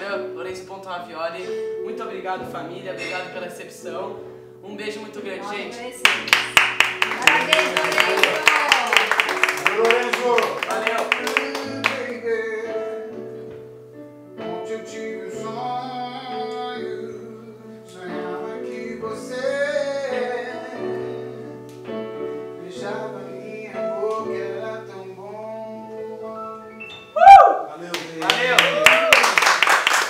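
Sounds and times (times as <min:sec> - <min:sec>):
electric keyboard chords: 0:01.4 - 0:27.2
person singing slow song: 0:11.1 - 0:13.6, 0:14.4 - 0:27.5.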